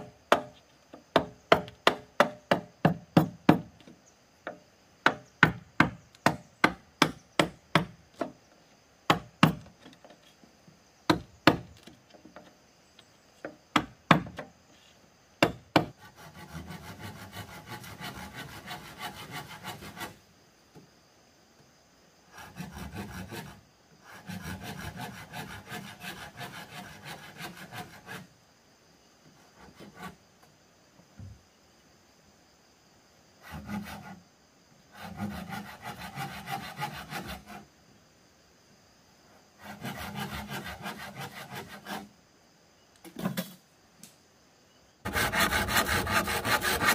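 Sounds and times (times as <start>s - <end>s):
sharp strikes on bamboo: 0.3s - 0.6s
hand saw cutting bamboo: 15.9s - 20.2s, 22.4s - 28.3s, 35.0s - 37.6s, 39.6s - 42.1s, 45.1s - 46.9s.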